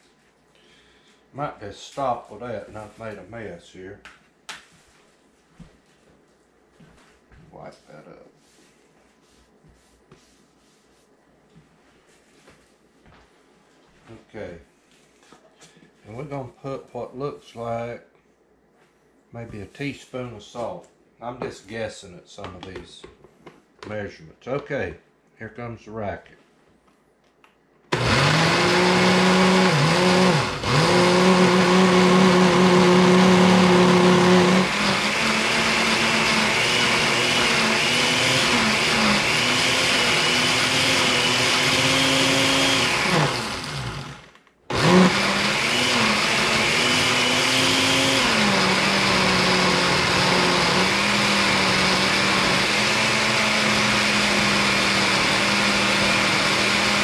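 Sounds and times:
blender motor running: 27.9s - 57.0s.

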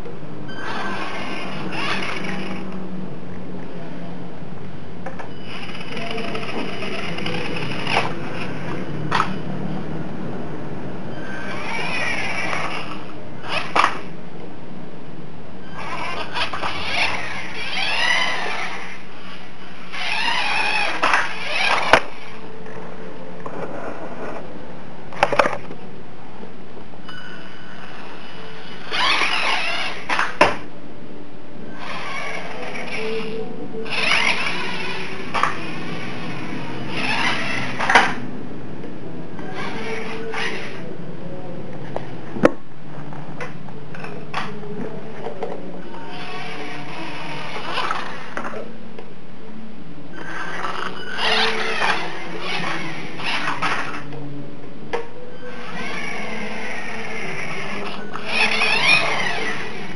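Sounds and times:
toy car motor whining: 0.6s - 2.7s, 5.4s - 9.3s, 11.3s - 14.1s, 15.8s - 22.4s, 27.8s - 30.4s, 31.8s - 38.2s, 39.5s - 40.8s, 46.1s - 48.5s, 50.2s - 54.1s, 55.4s - 59.9s.

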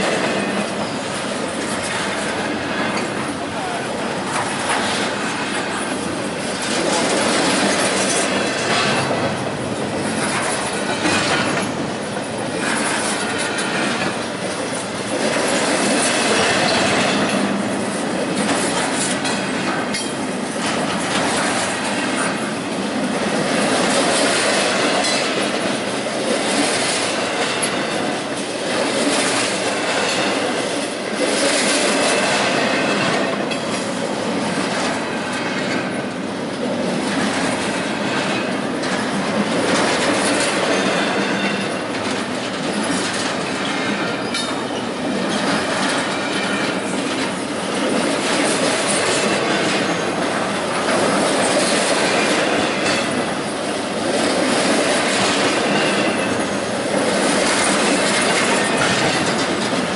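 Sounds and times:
train wheels rumbling on rails: 0.0s - 59.9s
clicks over rail joints: 57.2s - 59.9s.

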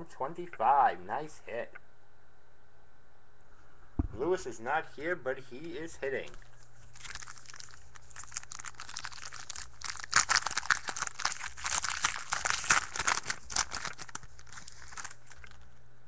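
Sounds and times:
plastic wrapper crinkling: 6.2s - 15.8s.

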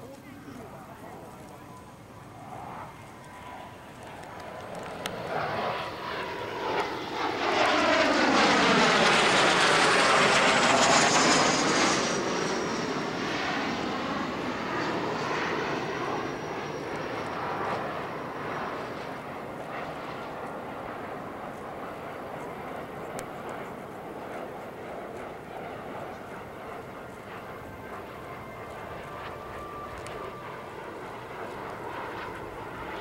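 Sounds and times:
jet aircraft low pass: 0.0s - 33.0s
high jet whine: 1.0s - 33.0s.

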